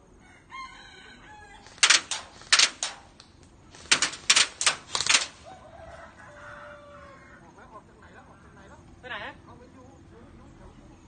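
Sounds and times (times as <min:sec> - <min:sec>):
airsoft gun shots: 0:01.7 - 0:03.2, 0:03.8 - 0:05.5.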